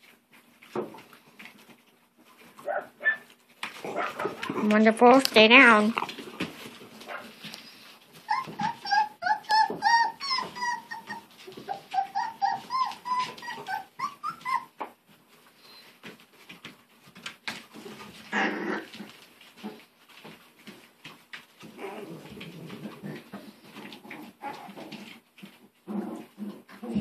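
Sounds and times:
puppies whining and yipping: 7.5s - 15.0s, 21.6s - 25.6s.

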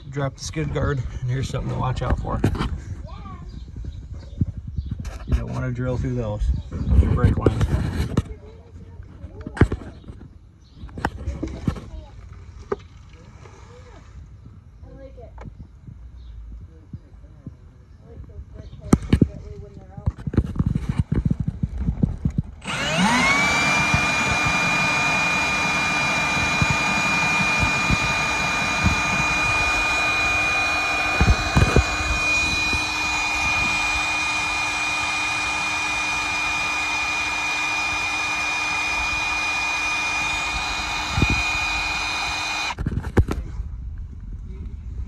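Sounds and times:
cordless drill whining: 22.6s - 42.9s.

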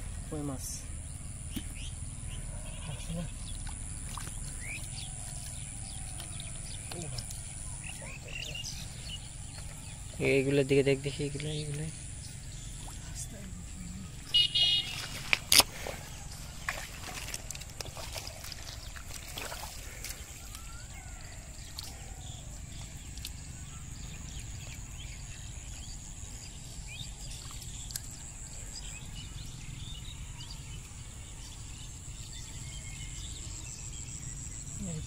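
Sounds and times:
hands sloshing in muddy water: 3.0s - 10.1s, 14.3s - 25.0s.

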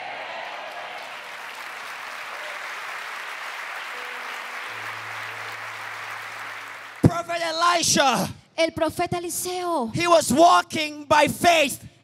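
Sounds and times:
congregation applauding: 0.0s - 7.7s.

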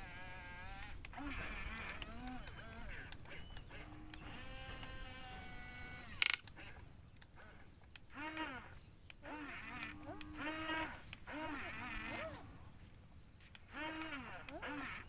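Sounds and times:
electric motors whining and creaking: 0.0s - 15.0s
sharp click: 6.1s - 6.6s.

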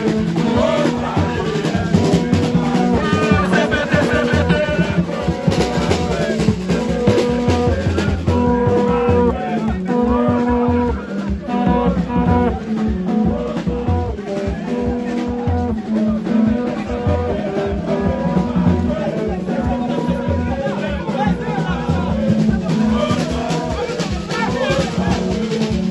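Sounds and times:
steady drum beat: 0.0s - 25.9s.

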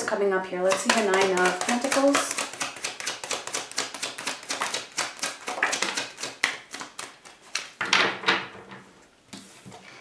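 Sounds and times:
cards being shuffled: 0.7s - 7.8s.

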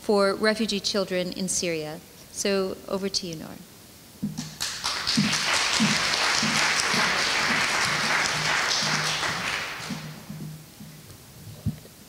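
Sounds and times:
audience applauding: 4.4s - 10.3s.

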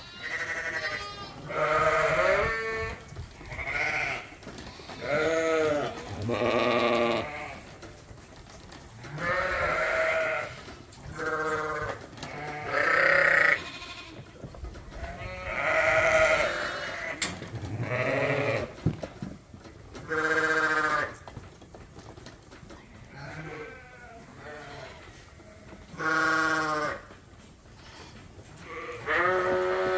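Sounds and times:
lambs bleating: 0.0s - 7.6s, 9.0s - 14.2s, 15.1s - 17.2s, 17.8s - 18.8s, 20.0s - 21.2s, 23.2s - 27.1s, 27.8s - 29.9s.

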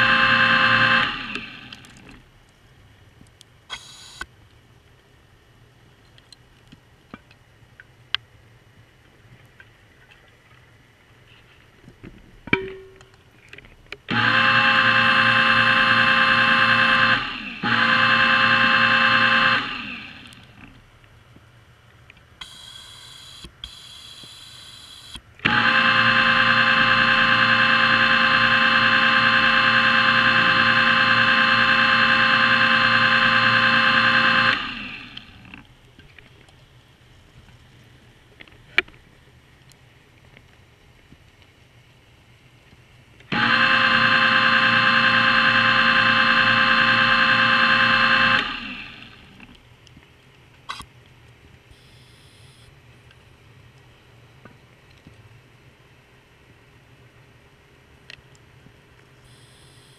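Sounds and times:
electric motor whining underwater: 0.0s - 2.2s, 14.1s - 20.8s, 25.4s - 35.6s, 43.3s - 49.6s
faint water noise: 1.2s - 14.1s, 34.7s - 43.3s.

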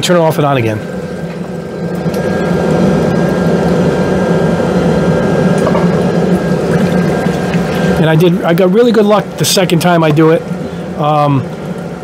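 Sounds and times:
water pump whine: 0.0s - 12.0s
water splashing into basin: 6.6s - 8.0s.

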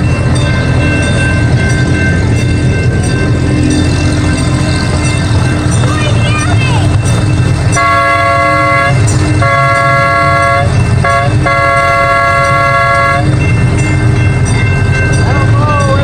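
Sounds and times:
steady low rumble: 0.0s - 16.0s
train horn blasts: 7.8s - 13.3s.

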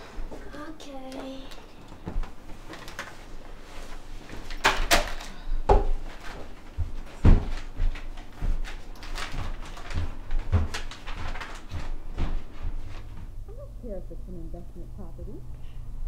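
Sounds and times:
knocks and thumps of objects: 4.6s - 12.8s
footsteps: 5.7s - 13.4s.

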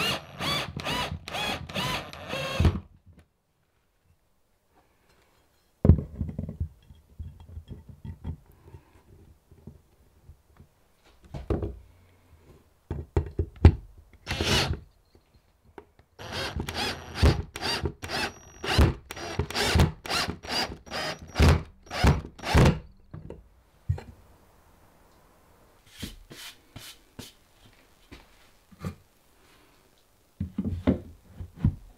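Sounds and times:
cordless drill driving screw: 0.0s - 2.8s, 14.3s - 14.8s, 16.2s - 22.9s.

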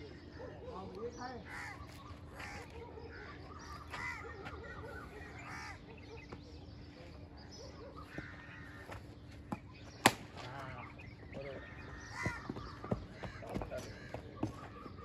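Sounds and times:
birds calling harshly: 0.0s - 15.0s
sharp crack: 10.0s - 10.5s.

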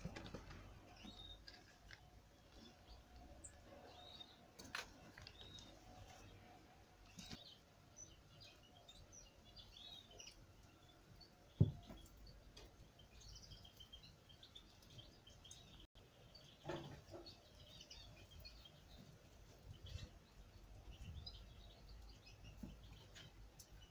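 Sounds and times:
small birds chirping: 0.0s - 23.9s
soft knock: 11.6s - 12.0s.

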